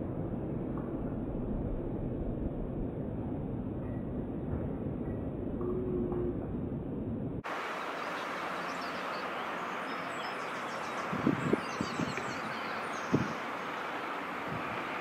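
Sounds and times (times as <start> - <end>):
low rumble: 0.0 - 7.4
outdoor background hiss: 6.8 - 15.0
faint high bird chirps: 7.7 - 13.9.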